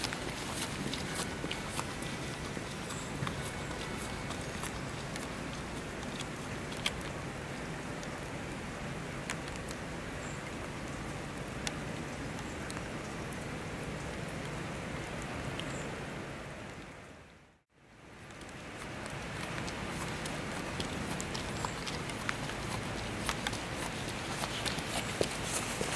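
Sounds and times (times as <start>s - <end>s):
sharp drip ticks: 0.0s - 7.2s, 18.2s - 25.9s
rain falling on tarmac: 0.0s - 17.1s, 17.9s - 25.9s.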